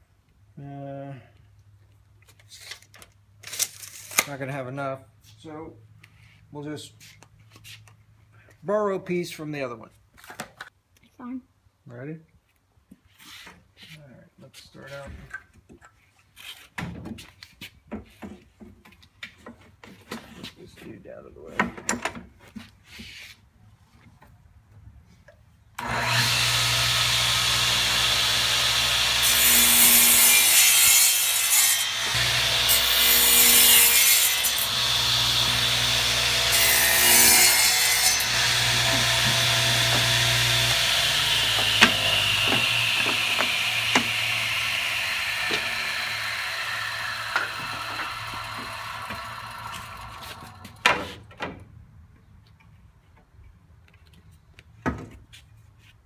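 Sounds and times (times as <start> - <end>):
saw spinning down whine: 25.8 - 29.2, 38.3 - 50.6
saw motor humming: 25.8 - 50.6
saw cutting wooden boards: 25.8 - 51.3.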